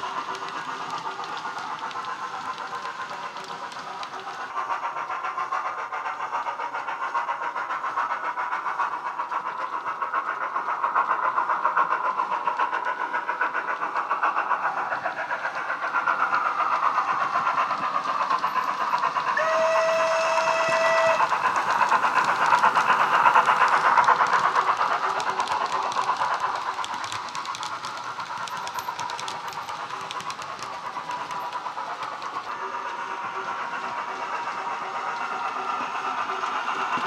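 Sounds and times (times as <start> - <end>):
steam locomotive exhaust beats: 0.0 - 37.0
steam whistle blast: 19.4 - 21.2.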